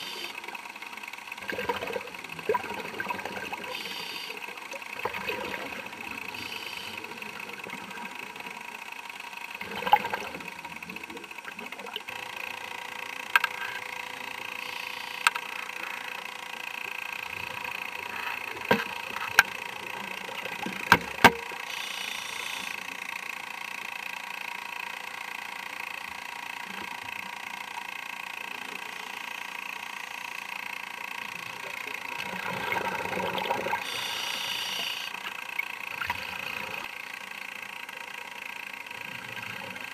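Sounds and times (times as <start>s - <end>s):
underwater mechanical hum: 0.0s - 39.9s
sharp clicks and knocks: 20.6s - 21.5s.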